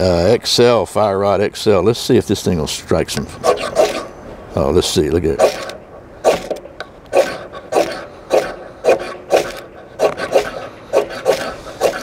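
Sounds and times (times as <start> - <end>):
ferro rod rasping scrapes: 7.2 - 12.0.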